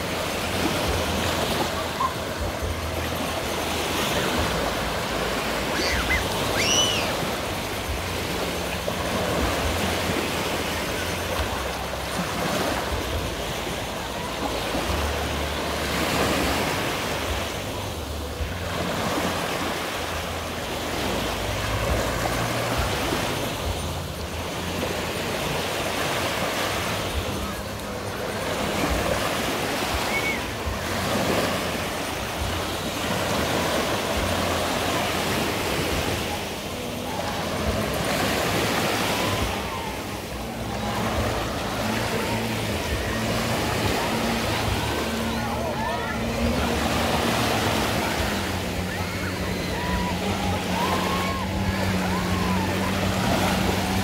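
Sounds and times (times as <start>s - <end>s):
sea waves washing on shore: 0.0s - 54.0s.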